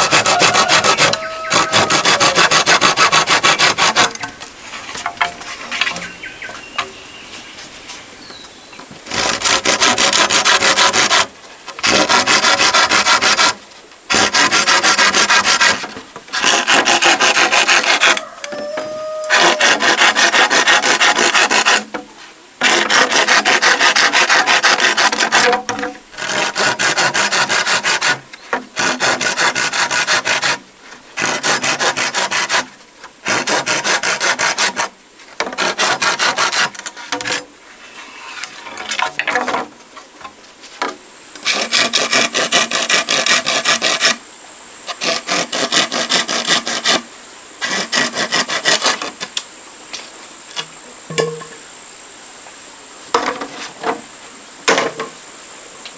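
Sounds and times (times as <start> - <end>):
machete blade rasping: 0.0 - 4.3, 9.1 - 18.2.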